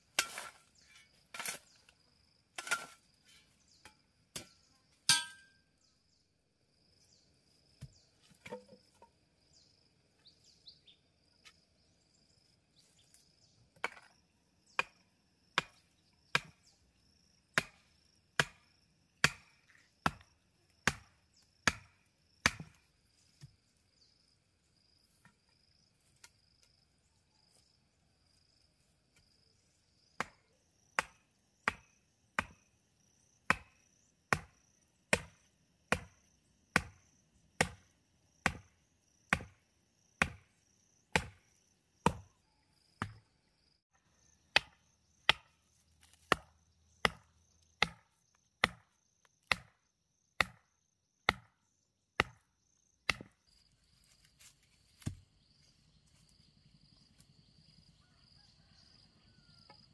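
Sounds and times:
insects chirping: 0:00.0 - 0:59.9
hand tool chopping: 0:00.2 - 0:00.6, 0:19.2 - 0:22.8, 0:36.8 - 0:37.0, 0:37.6 - 0:37.8, 0:38.4 - 0:38.6, 0:39.3 - 0:39.6, 0:40.2 - 0:40.4, 0:41.1 - 0:41.4, 0:44.5 - 0:48.0, 0:48.6 - 0:48.8, 0:49.4 - 0:49.7, 0:50.4 - 0:50.6, 0:51.3 - 0:51.5, 0:52.2 - 0:52.4, 0:53.1 - 0:53.3.

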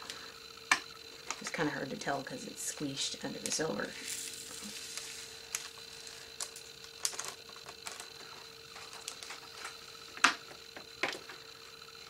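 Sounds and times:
plastic bags clicking and crinkling: 0:06.4 - 0:09.8.

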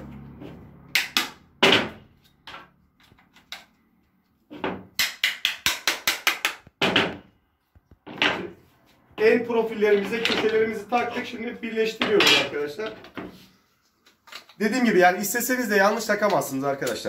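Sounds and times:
mallet knocking plastic connectors: 0:00.9 - 0:02.6, 0:04.6 - 0:08.5.

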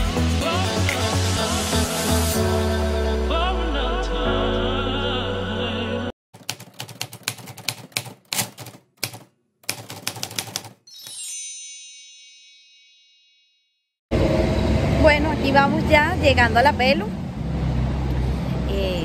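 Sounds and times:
background music: 0:00.0 - 0:06.1
typewriter keys clacking: 0:06.4 - 0:10.8.

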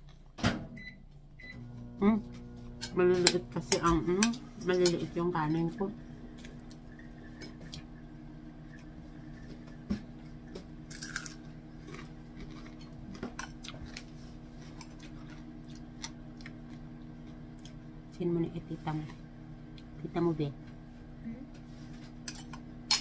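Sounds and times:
steady low hum: 0:00.0 - 0:23.0
person chewing: 0:10.2 - 0:17.8.

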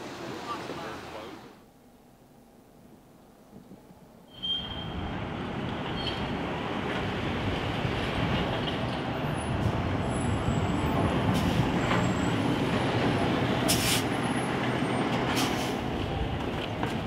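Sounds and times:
air brakes hissing: 0:11.3 - 0:11.8, 0:13.7 - 0:14.1, 0:15.3 - 0:15.9.

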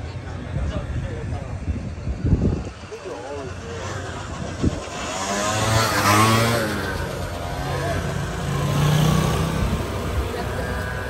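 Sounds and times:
scooter engine hum: 0:00.0 - 0:11.0
scooter engine passing by: 0:02.6 - 0:11.0.

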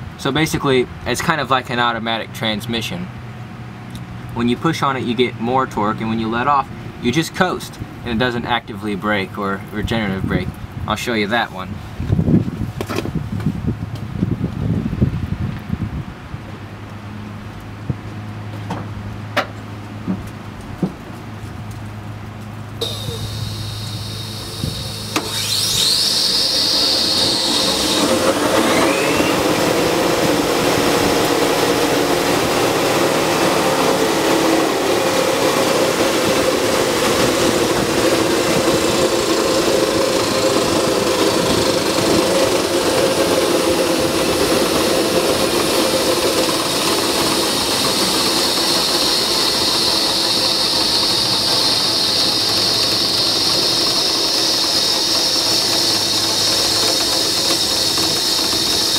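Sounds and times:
electric motor whine: 0:22.8 - 0:58.9
motor hum: 0:22.8 - 0:58.9.

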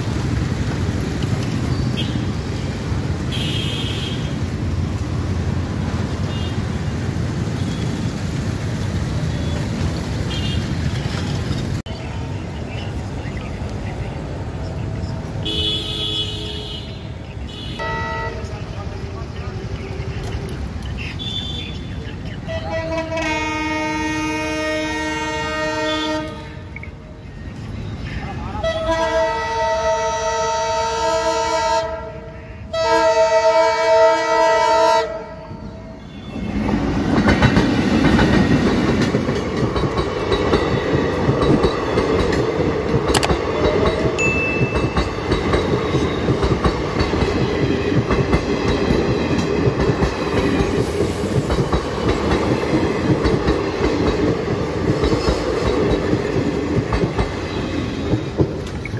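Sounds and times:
train rumbling past: 0:00.0 - 0:58.9
wheels clacking over rail joints: 0:07.0 - 0:11.9, 0:36.5 - 0:58.9
train horn blasts: 0:17.6 - 0:18.5, 0:22.5 - 0:26.7, 0:28.6 - 0:36.4.

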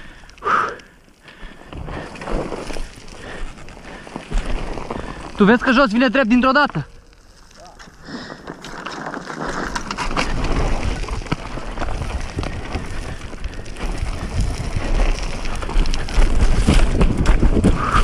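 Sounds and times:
gravel crunching under tyres: 0:00.0 - 0:18.0
motorcycle clattering over rough ground: 0:01.7 - 0:07.0, 0:07.8 - 0:18.0
wind rumbling on microphone: 0:09.4 - 0:18.0.

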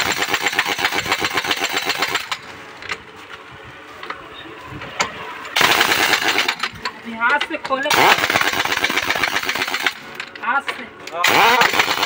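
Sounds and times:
air impact wrench hammering: 0:00.0 - 0:02.5, 0:05.6 - 0:10.4, 0:11.0 - 0:12.0.

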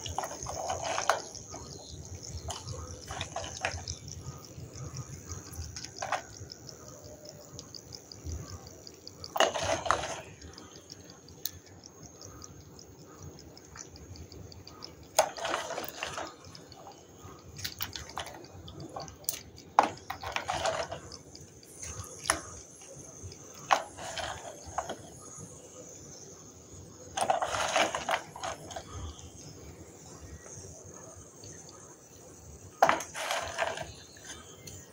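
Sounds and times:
clay chunks clicking together: 0:00.0 - 0:25.2.

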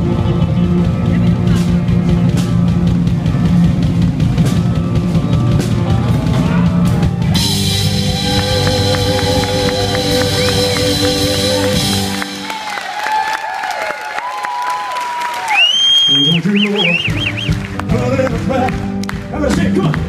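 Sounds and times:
live rock band playing: 0:00.0 - 0:13.2, 0:16.1 - 0:20.0.

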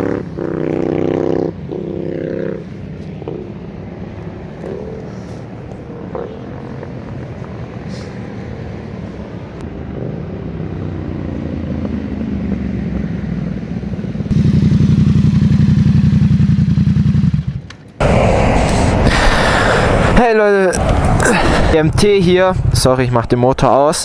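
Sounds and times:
motorcycle engine: 0:00.0 - 0:07.8, 0:09.5 - 0:18.4.

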